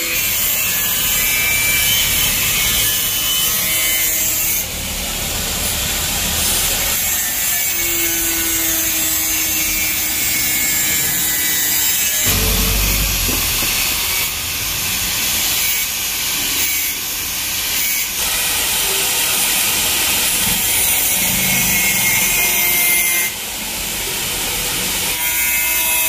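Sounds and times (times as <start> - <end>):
tool grinding metal bracket: 9.4 - 14.8.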